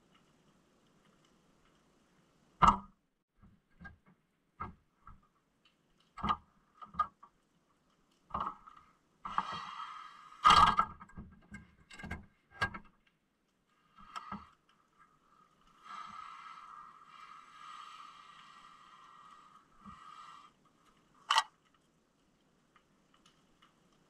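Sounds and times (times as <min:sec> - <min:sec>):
underwater knocks and thuds: 0:02.6 - 0:04.8.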